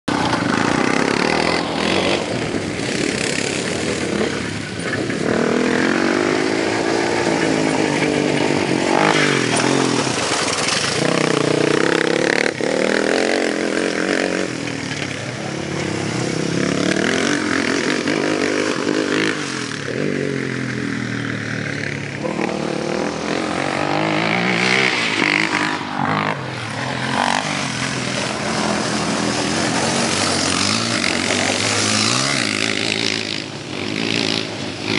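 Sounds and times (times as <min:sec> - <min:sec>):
quad engine revving hard: 0:00.1 - 0:34.9.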